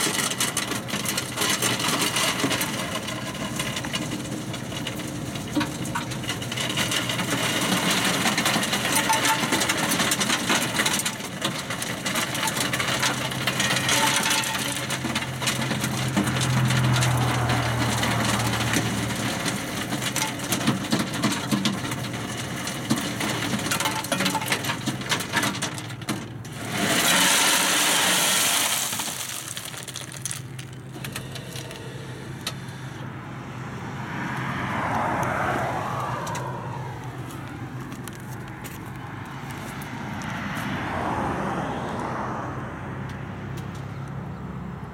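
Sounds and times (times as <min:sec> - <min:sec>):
ice cubes clattering in chute: 0:00.0 - 0:31.9
loud rush of noise: 0:33.1 - 0:42.1.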